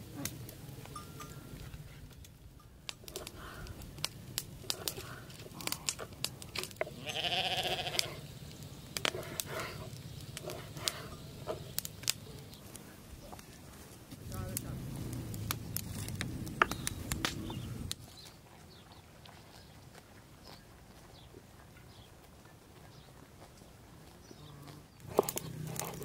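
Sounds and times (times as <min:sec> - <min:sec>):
sheep bleating: 0:06.9 - 0:08.3.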